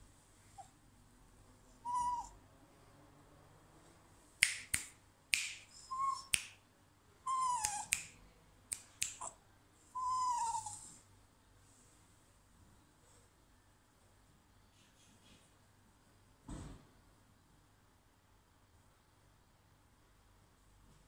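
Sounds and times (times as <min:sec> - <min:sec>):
finger snaps: 0:04.4 - 0:06.6, 0:07.6 - 0:09.4.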